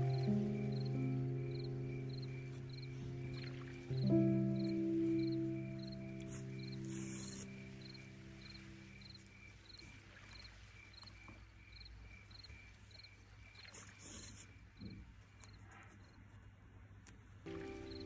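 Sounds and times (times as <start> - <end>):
soft background music: 0.0 - 10.0, 17.5 - 18.0
cricket chirping: 0.0 - 16.2, 17.5 - 18.0.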